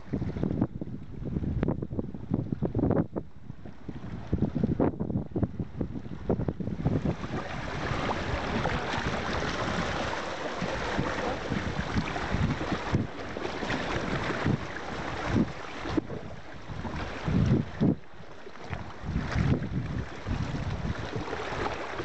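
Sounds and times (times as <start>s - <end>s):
wind buffeting microphone: 0.0s - 22.0s
sea water splashing over rocks: 6.8s - 22.0s.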